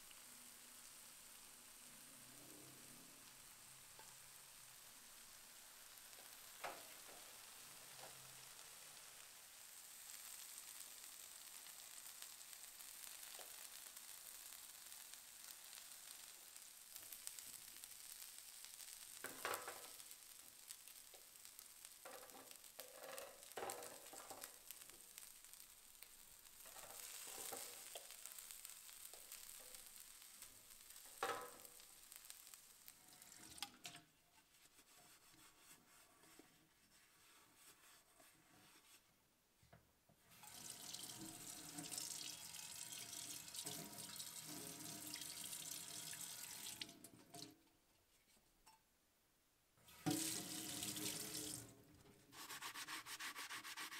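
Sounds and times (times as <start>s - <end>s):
meat sizzling on grill plate: 0.0s - 33.5s, 40.4s - 46.8s.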